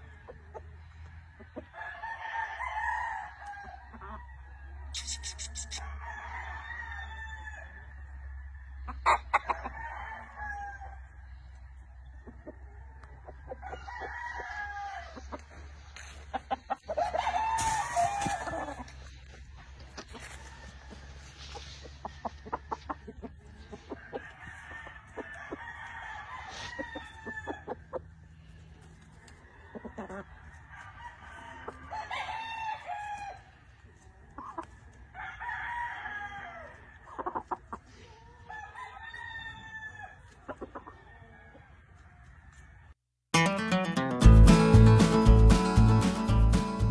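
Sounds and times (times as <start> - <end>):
chicken clucking: 0.0 - 2.1, 3.9 - 6.0, 8.2 - 10.3, 11.0 - 32.6, 33.4 - 35.0, 36.7 - 39.6, 40.2 - 42.8
roosters crowing: 0.0 - 42.9.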